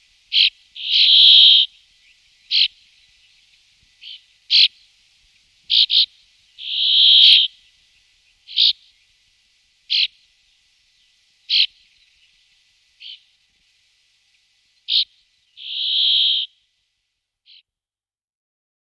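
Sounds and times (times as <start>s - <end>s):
bird drawn-out buzzes: 0.0s - 1.8s, 5.7s - 7.6s, 9.9s - 10.2s, 14.8s - 16.6s
bird short sharp calls: 0.3s - 1.8s, 2.5s - 2.8s, 4.0s - 4.8s, 5.7s - 7.6s, 8.5s - 8.9s, 9.9s - 10.2s, 11.5s - 11.8s, 13.0s - 13.3s, 14.9s - 16.6s.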